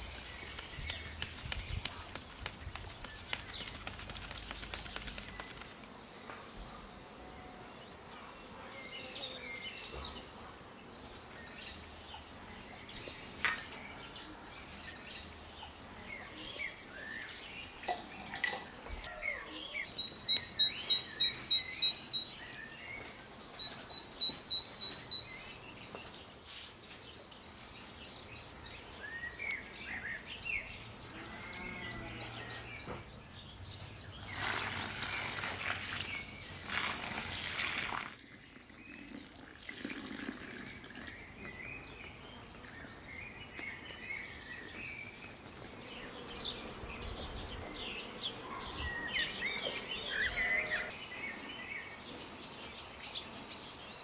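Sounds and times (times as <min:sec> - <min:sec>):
songbirds chirping: 0:00.0 - 0:54.0
water pouring into a basin: 0:34.3 - 0:41.2.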